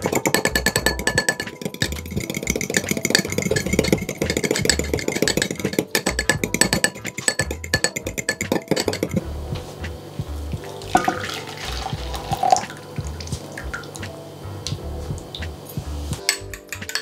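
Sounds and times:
fork clinking against glass bowl: 0:00.0 - 0:09.2, 0:16.2 - 0:17.0
background music: 0:00.0 - 0:17.0
liquid pouring and splashing: 0:10.6 - 0:15.5.

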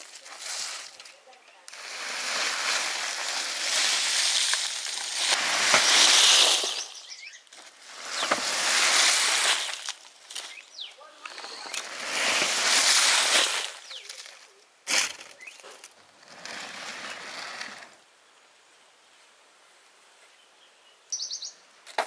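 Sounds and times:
soil and stones scraped by hand: 0:00.0 - 0:18.0.

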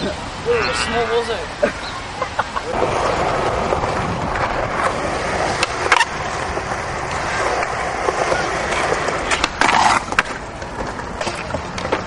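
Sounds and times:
skateboard wheels rolling on concrete: 0:00.0 - 0:12.0
skateboard clacks: 0:02.6 - 0:12.0.

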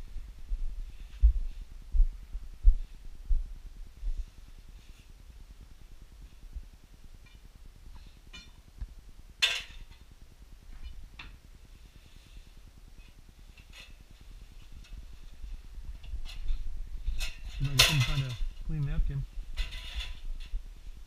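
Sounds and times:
faint low rumble: 0:00.0 - 0:21.0
sharp clatter: 0:16.1 - 0:18.6.

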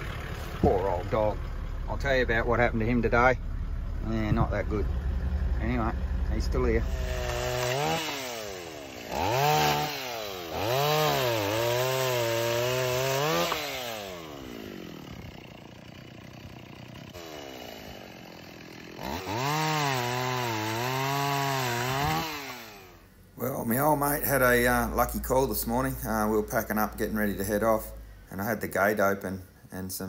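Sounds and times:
chainsaw cutting wood: 0:06.7 - 0:23.1.

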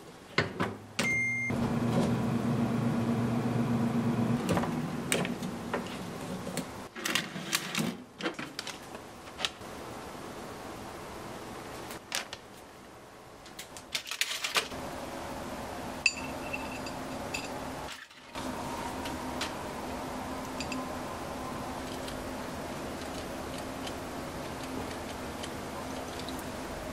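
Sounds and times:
air fryer oven humming: 0:01.0 - 0:06.9, 0:14.7 - 0:26.9.

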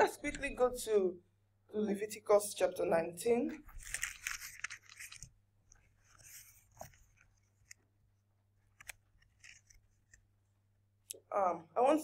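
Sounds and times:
paper pages rustling: 0:03.6 - 0:10.4.

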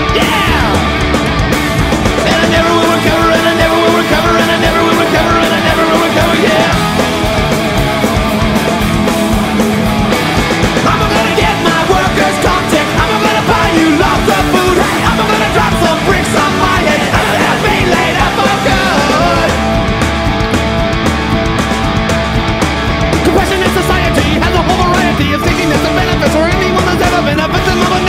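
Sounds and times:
loud punk rock music: 0:00.0 - 0:28.0.

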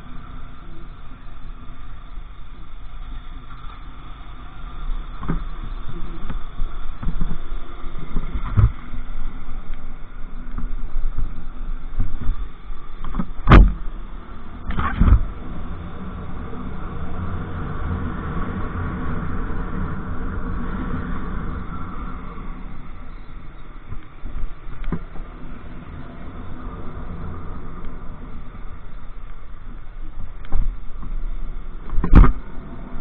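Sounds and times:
road and wind noise: 0:00.0 - 0:33.0
sharp thumps: 0:13.0 - 0:13.8.

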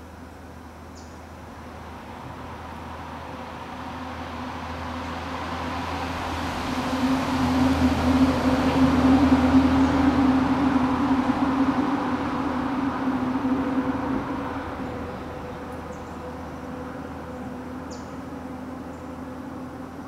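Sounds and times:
distant engine drone: 0:00.0 - 0:20.0.

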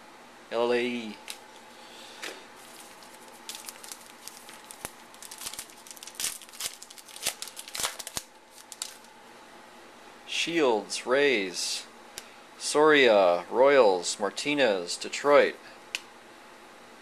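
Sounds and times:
foil wrapper tearing and crinkling: 0:02.6 - 0:09.1.

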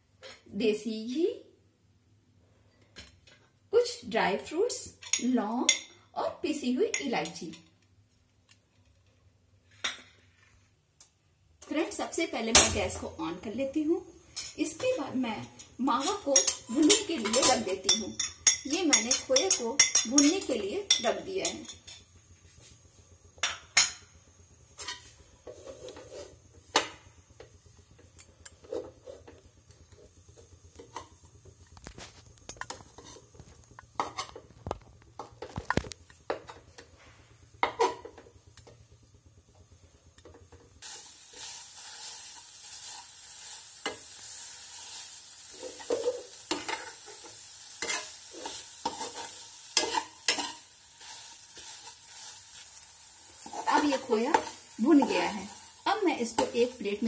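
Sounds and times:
food sizzling: 0:11.7 - 0:57.0
metal spatula scraping metal pan: 0:44.9 - 0:52.4.

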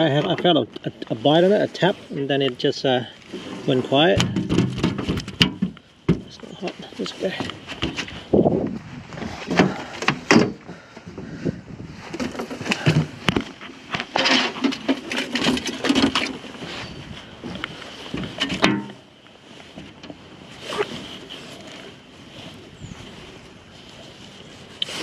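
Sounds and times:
knocks and clicks of handling fish: 0:04.2 - 0:06.4, 0:09.5 - 0:11.1, 0:17.5 - 0:19.0.

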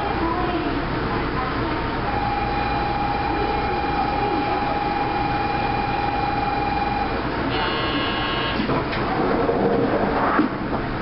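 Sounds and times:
single steady tone: 0:02.1 - 0:08.7.

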